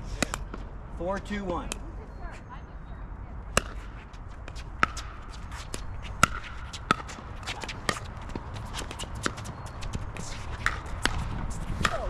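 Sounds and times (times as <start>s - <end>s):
ball bounces: 3.5s - 12.0s
shoe scuffs on hard court: 3.7s - 12.0s.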